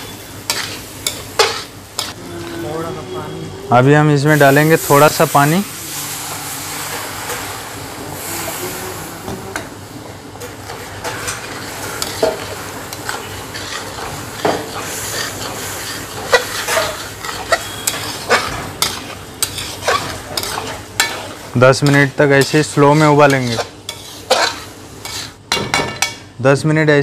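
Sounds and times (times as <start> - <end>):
food sizzling in a pan: 0.0 - 2.8, 3.7 - 26.2
metal spatula scraping a pan: 0.4 - 2.6, 11.0 - 25.4.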